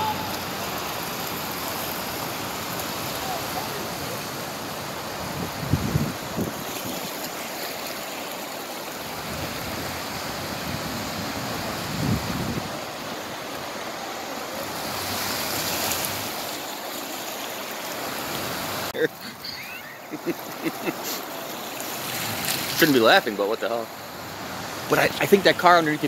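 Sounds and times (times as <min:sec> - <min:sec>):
cars ploughing through water: 0:00.0 - 0:26.0
floodwater rushing: 0:00.0 - 0:26.0
microphone wind bumps: 0:05.4 - 0:06.6, 0:11.8 - 0:12.7.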